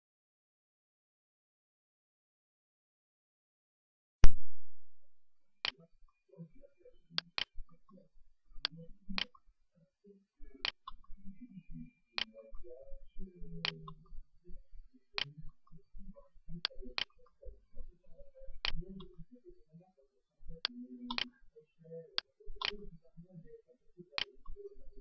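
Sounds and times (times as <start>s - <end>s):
faint low uneven sounds: 4.9s - 25.0s
sharp clicks: 20.6s - 21.3s.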